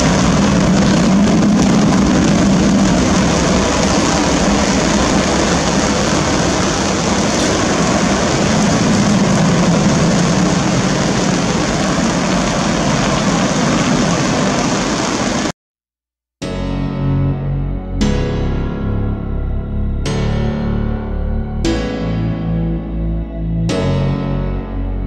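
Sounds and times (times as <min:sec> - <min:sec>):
jet engines at high power: 0:00.0 - 0:15.5
runway spray rush: 0:00.0 - 0:15.5.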